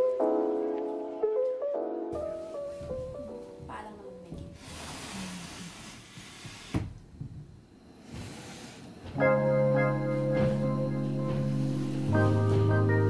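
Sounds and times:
organ-like keyboard chord music: 0:00.0 - 0:03.7, 0:09.2 - 0:13.0.

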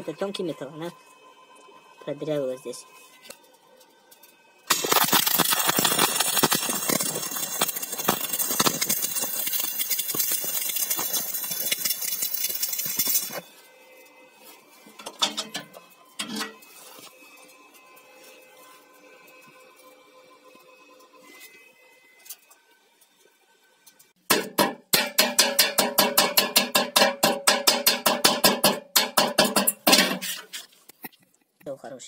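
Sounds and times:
welding arc crackling: 0:04.7 - 0:13.4.

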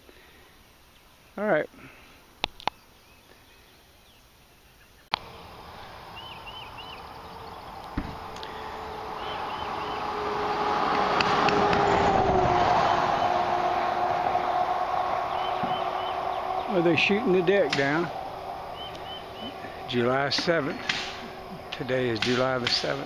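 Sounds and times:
bird chirps: 0:02.5 - 0:10.2, 0:15.2 - 0:23.0
vehicle passing by: 0:05.2 - 0:23.0
low thump: 0:07.9 - 0:08.3.

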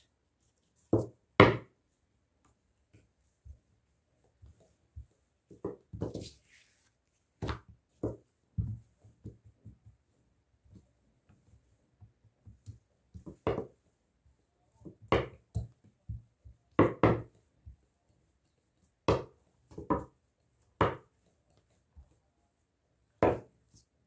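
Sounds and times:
dough rustling: 0:00.0 - 0:24.0
rolling pin knocking on countertop: 0:00.9 - 0:01.8, 0:12.4 - 0:13.8, 0:14.8 - 0:17.4, 0:19.0 - 0:20.1, 0:20.8 - 0:21.1, 0:23.2 - 0:23.5.

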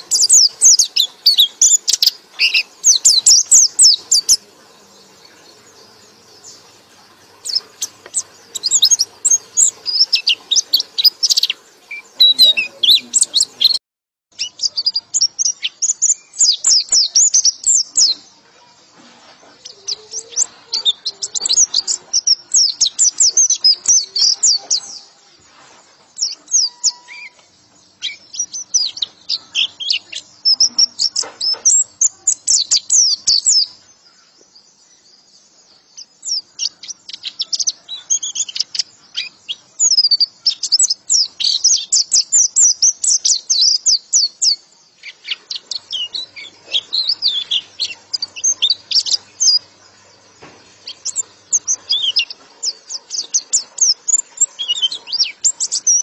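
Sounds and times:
bird twittering: 0:00.0 - 0:13.8, 0:26.2 - 0:34.3, 0:36.0 - 0:56.0.

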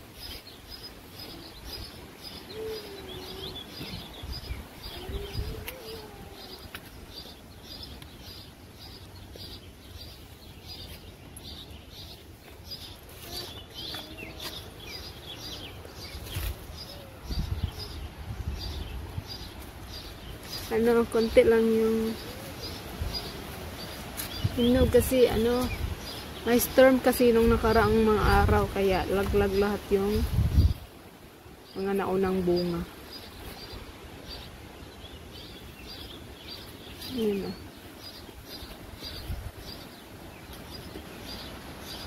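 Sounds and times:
lower gliding bird calls: 0:00.3 - 0:09.6
wind buffeting microphone: 0:01.6 - 0:07.8, 0:13.8 - 0:31.0, 0:38.4 - 0:42.0.

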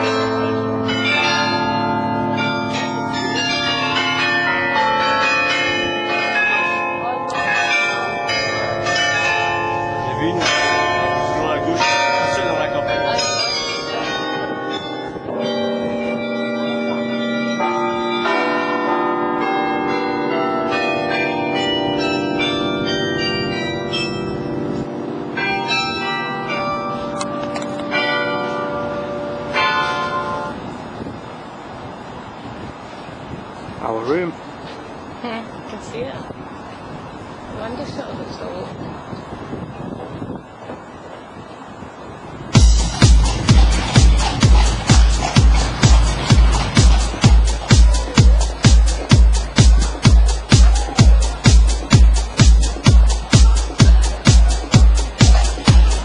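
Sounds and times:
carillon bells ringing: 0:00.0 - 0:31.1, 0:42.5 - 0:56.0.

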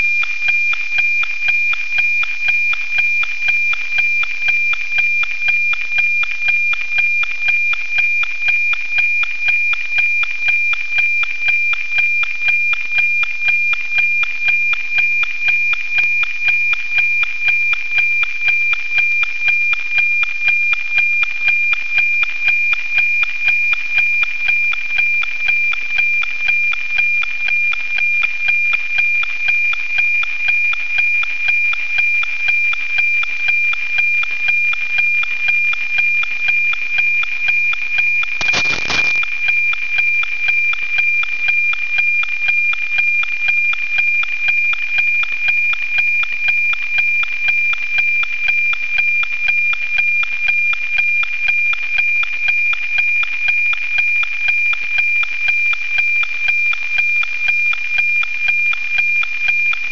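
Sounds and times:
steady radio tone with ticking: 0:38.2 - 0:40.8
burst of radio static: 0:38.4 - 0:39.2.

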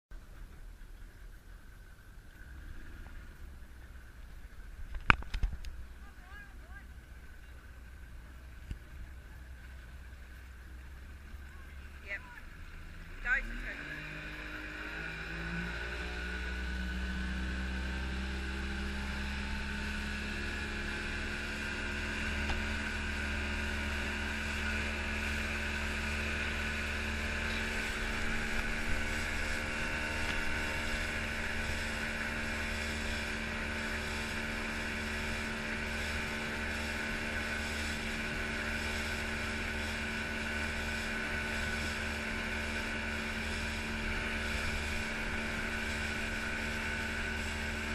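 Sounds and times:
outboard engine accelerating: 0:00.1 - 0:47.9.

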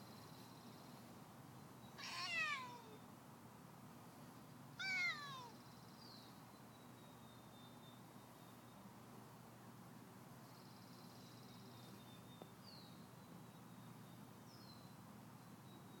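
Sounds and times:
cat meowing: 0:02.0 - 0:03.0, 0:04.8 - 0:05.6.

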